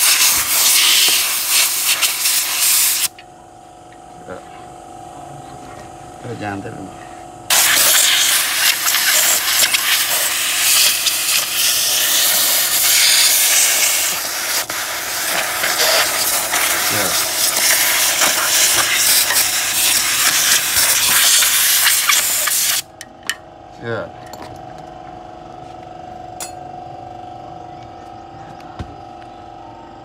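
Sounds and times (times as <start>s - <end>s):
compressed air hissing: 0.0s - 3.1s, 7.5s - 22.9s.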